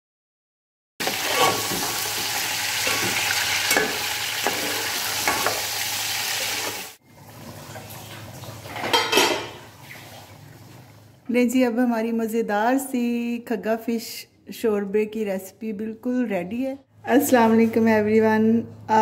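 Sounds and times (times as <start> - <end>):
fish sizzling in hot oil: 1.0 - 7.5
metal spoon scraping pot: 1.2 - 1.9.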